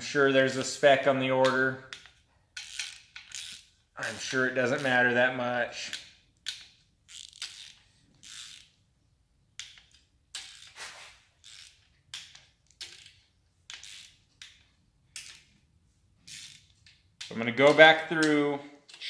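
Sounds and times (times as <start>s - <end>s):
torque wrench ratcheting: 1.4s - 5.0s, 5.9s - 8.8s, 9.6s - 10.8s, 11.4s - 15.5s, 16.3s - 18.3s.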